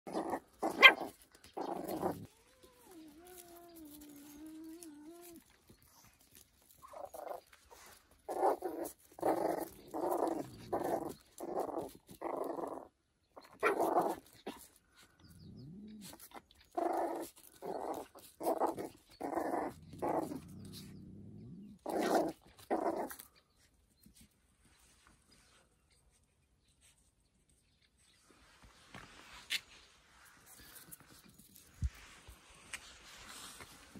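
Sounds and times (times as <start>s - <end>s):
puppy growling: 0.1s - 5.4s, 8.3s - 13.0s, 15.2s - 23.3s
puppy barking: 0.7s - 1.1s.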